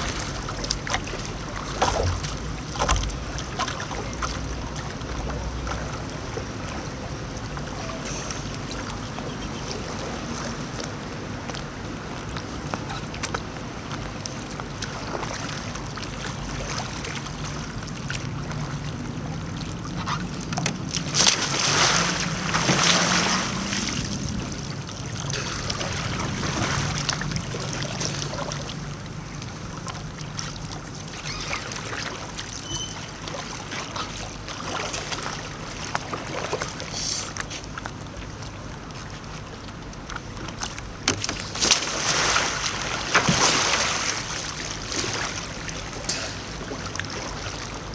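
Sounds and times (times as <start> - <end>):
paddle splashes: 0.0 - 47.9
water sloshing: 0.0 - 47.9
loud splashing: 20.8 - 28.9, 41.2 - 47.8.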